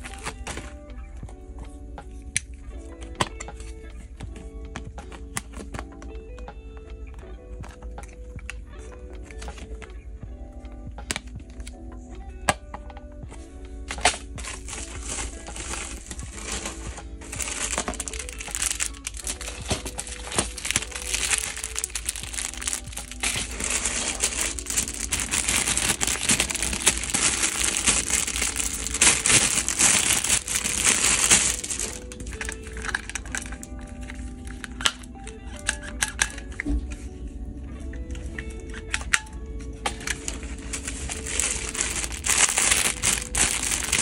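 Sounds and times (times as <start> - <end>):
plastic bags crinkling: 0.0 - 0.8, 13.8 - 36.3, 40.0 - 44.0
background music: 0.0 - 44.0.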